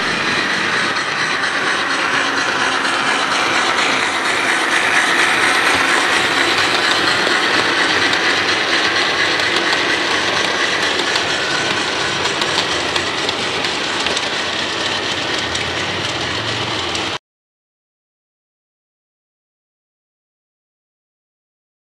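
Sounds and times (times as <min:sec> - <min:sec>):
model train wheels rattling on rail: 0:00.0 - 0:17.2.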